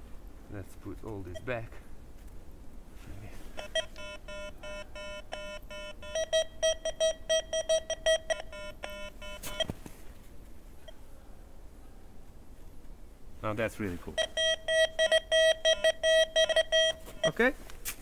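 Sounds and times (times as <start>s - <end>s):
metal detector beeps: 3.6s - 9.7s, 14.2s - 17.5s.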